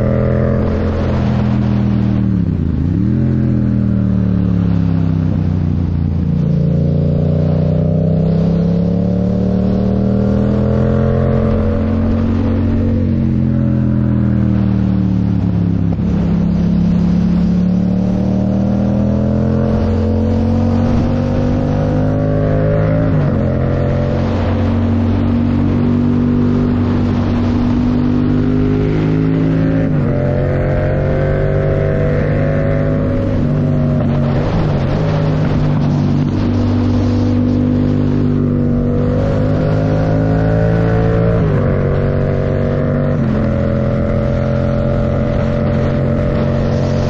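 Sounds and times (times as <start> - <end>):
motorcycle engine running: 19.2 - 47.0.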